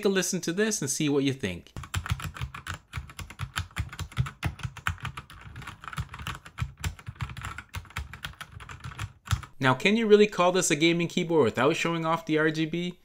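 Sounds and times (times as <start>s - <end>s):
mechanical keyboard typing: 1.8s - 9.6s.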